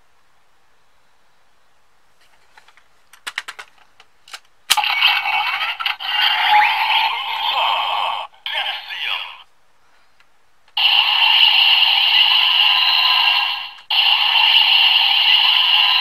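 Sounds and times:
small plastic clicks: 2.6 - 4.6
toy electronic sound effect: 4.7 - 9.4, 10.8 - 16.0.

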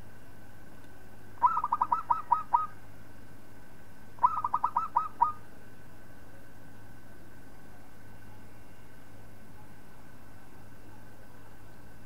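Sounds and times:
faint steady hum: 0.0 - 12.0
dove cooing: 1.4 - 2.8, 4.2 - 5.4.

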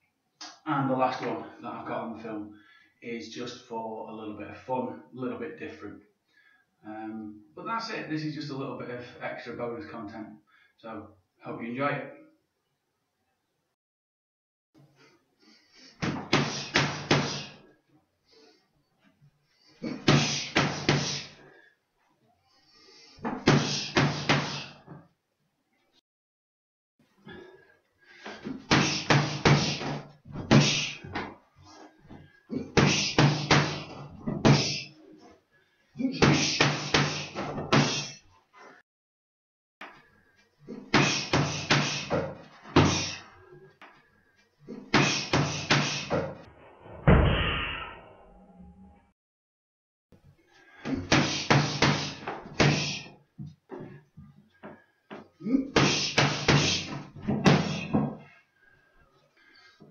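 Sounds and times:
boxing gloves striking pads: 16.0 - 17.5, 28.7 - 31.0, 32.8 - 34.8, 50.9 - 53.1, 55.8 - 58.1.

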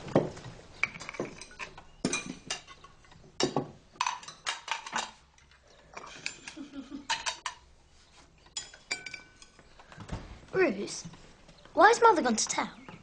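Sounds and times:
plates and cutlery clinking: 0.8 - 7.7, 8.5 - 9.8.

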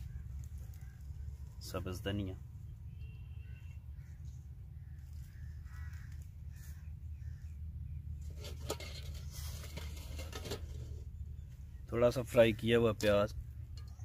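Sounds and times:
faint bird calls: 0.0 - 1.8, 2.6 - 8.3.

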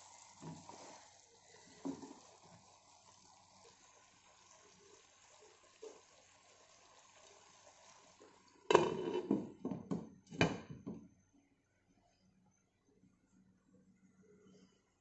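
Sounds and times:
faint steady hiss: 0.0 - 15.0
glass lid clattering on pot: 8.7 - 10.8.

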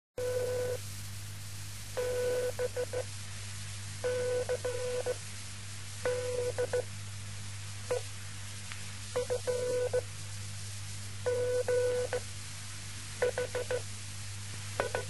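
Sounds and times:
steady hiss: 0.6 - 15.0
electronic telephone beeps: 14.8 - 15.0.

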